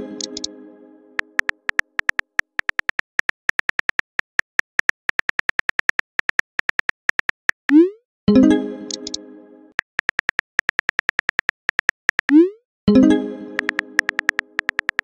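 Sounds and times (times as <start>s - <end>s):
phone keyboard taps: 13.6s - 15.0s.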